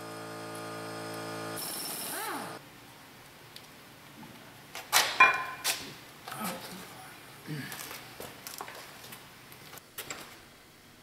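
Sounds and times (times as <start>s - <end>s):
power tool winding down: 0.0s - 2.6s.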